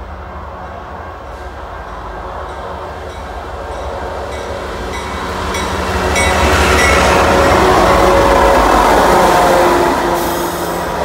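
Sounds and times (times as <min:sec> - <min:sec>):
diesel locomotive engine rumble: 0:00.0 - 0:11.0
locomotive bell ringing: 0:01.9 - 0:08.3.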